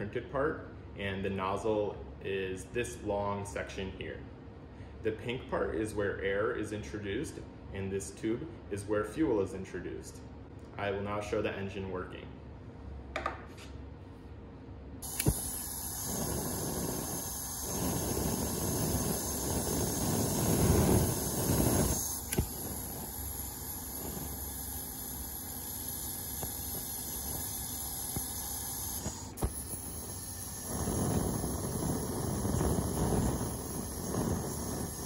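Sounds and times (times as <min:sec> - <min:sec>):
sharp clicks: 0:15.0 - 0:15.6
gas hissing through valve: 0:15.0 - 0:35.0
surges of blown air: 0:15.0 - 0:35.0.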